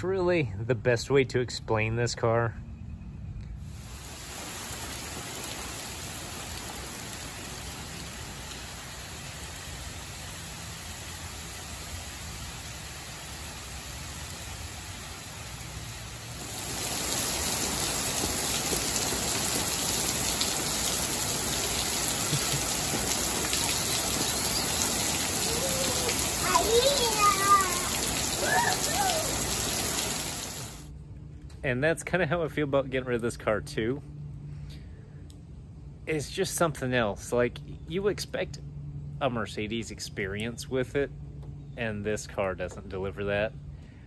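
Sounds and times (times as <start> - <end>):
rain falling: 3.7 - 30.9.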